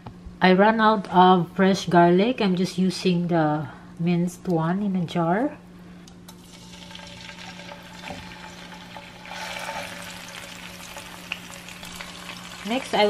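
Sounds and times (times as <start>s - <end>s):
garlic sizzling in hot oil: 6.3s - 13.0s.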